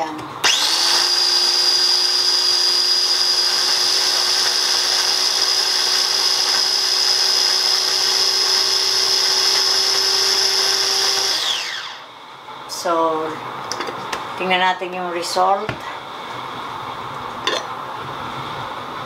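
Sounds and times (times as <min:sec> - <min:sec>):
electric chopper motor whining: 0:00.4 - 0:12.0.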